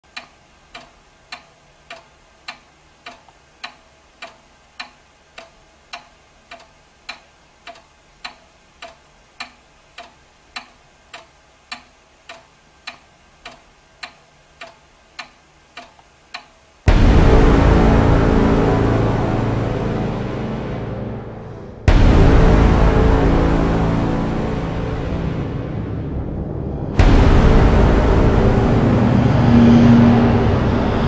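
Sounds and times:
grandfather clock ticking: 0.0 - 16.8.

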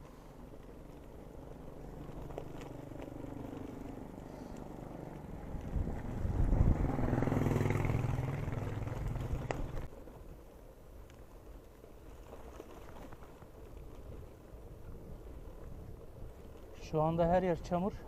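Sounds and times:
bike rolling on wet dirt: 0.0 - 18.0
motorcycle passing: 0.4 - 9.9.

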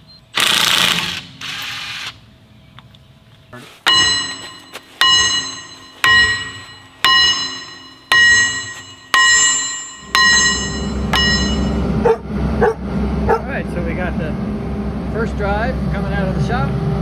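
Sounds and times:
low engine rumble: 2.3 - 17.0
hammer blows on steel: 3.8 - 12.0.

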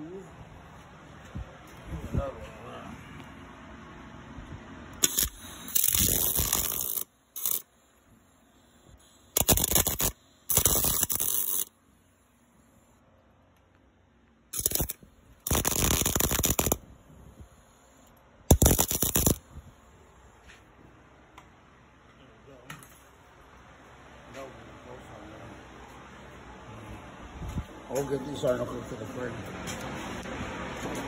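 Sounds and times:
welder arc crackling sizzle: 5.0 - 7.7, 9.3 - 11.7, 14.6 - 16.8, 17.8 - 19.4.

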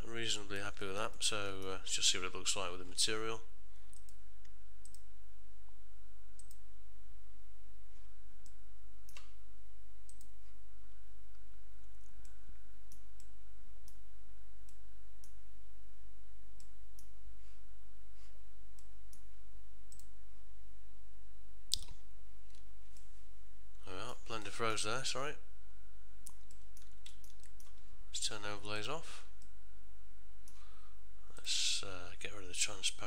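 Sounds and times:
steady low hum: 0.0 - 33.0
computer mouse clicks: 3.9 - 5.0, 6.4 - 6.6, 10.1 - 10.3, 19.9 - 20.1, 26.2 - 27.8.

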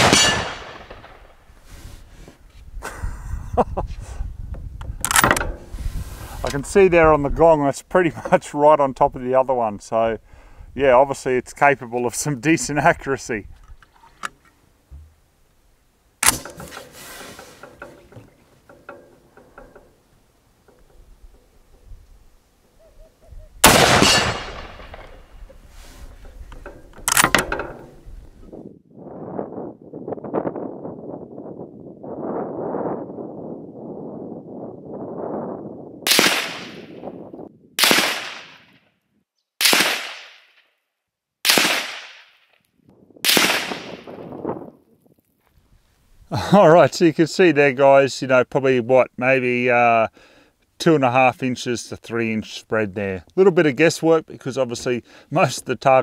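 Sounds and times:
rifle action metallic clack: 0.0 - 1.2, 4.9 - 5.6, 16.2 - 16.9, 23.7 - 25.6, 26.2 - 27.9
rifle shots: 0.0 - 1.4, 16.2 - 16.6, 23.6 - 25.3, 36.1 - 37.0, 37.8 - 38.7, 39.6 - 40.6, 41.4 - 42.3, 43.2 - 44.3
rifle handling clicks and knocks: 4.8 - 5.7, 16.2 - 20.0, 26.2 - 28.0.

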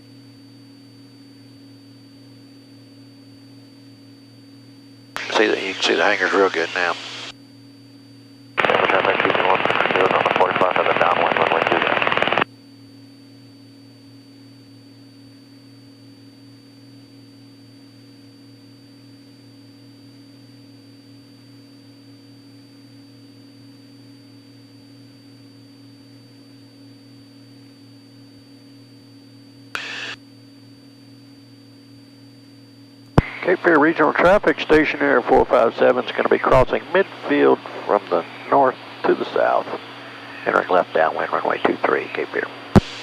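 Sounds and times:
light aircraft engine hum: 0.0 - 12.4, 13.0 - 43.0
loud noisy sound: 5.2 - 7.3, 8.6 - 12.4, 29.8 - 30.2, 42.4 - 43.0.

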